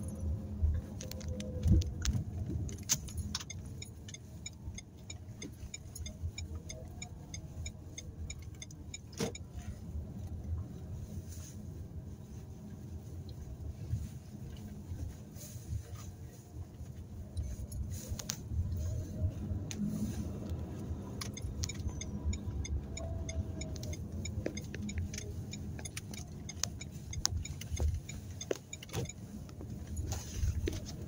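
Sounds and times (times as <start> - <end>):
engine and road rumble: 0.0 - 31.0
turn signal ticking: 0.9 - 10.5, 17.3 - 31.0.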